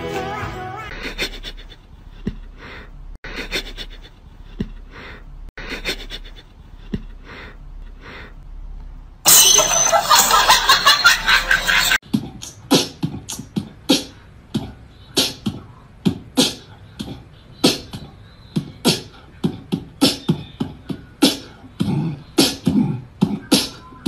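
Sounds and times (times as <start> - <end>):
beatbox-like percussive beat: 12.0 - 24.0.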